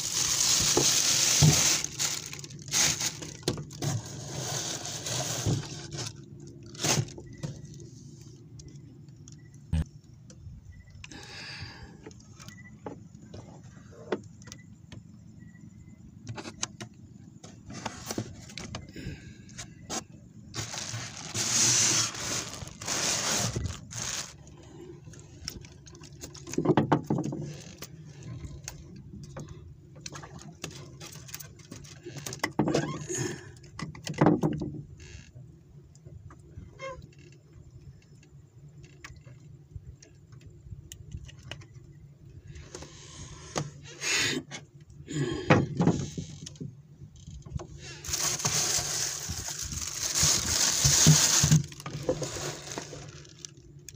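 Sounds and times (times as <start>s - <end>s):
plastic bags rustling: 0.0s - 7.3s, 20.6s - 24.5s, 48.0s - 53.6s
knocks and scrapes: 0.0s - 7.6s, 16.3s - 18.8s
styrofoam cooler being handled: 0.0s - 7.8s, 17.4s - 18.9s, 19.6s - 24.5s, 47.8s - 53.6s.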